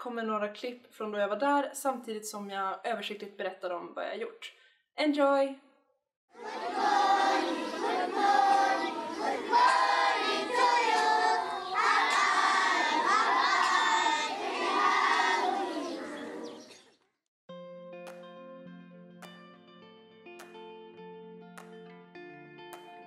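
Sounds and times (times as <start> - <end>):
children singing in unison: 6.4 - 16.7.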